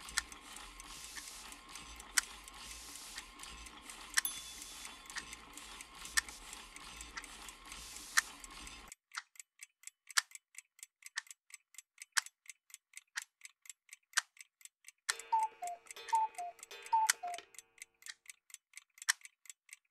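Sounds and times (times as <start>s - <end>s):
clock ticking: 0.0s - 19.9s
clock chime: 4.2s - 5.8s, 15.1s - 17.5s.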